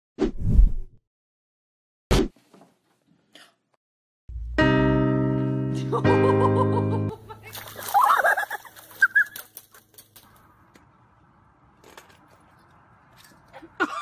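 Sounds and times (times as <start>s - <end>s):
water splashing in paddling pool: 7.4s - 10.5s.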